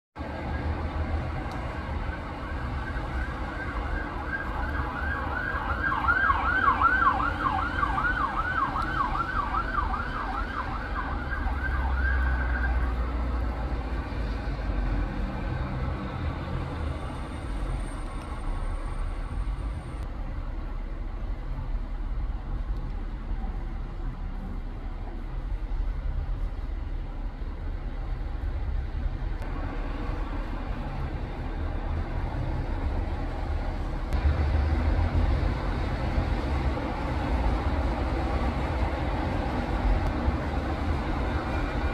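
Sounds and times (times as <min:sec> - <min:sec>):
low rumble of road traffic: 0:00.2 - 0:41.9
ambulance siren yelping: 0:01.9 - 0:13.3.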